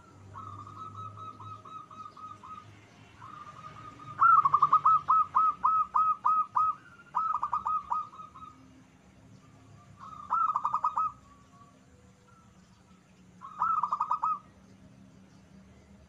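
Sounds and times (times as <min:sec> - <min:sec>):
dove cooing song: 0:00.0 - 0:08.8, 0:09.6 - 0:14.8.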